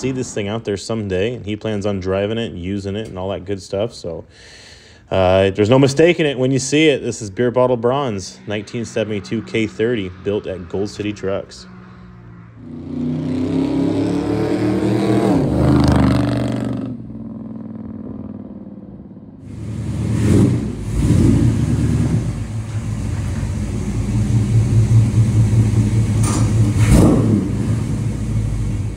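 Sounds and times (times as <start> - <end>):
pickup truck engine revving: 0.0 - 1.4, 7.8 - 16.9, 19.4 - 28.9.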